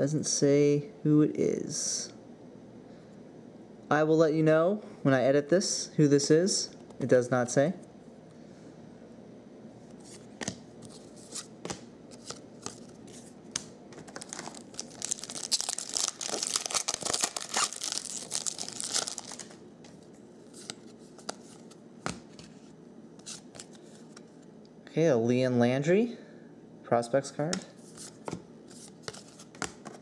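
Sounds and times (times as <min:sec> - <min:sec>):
foil pack tearing and crinkling: 0:14.0 - 0:19.6.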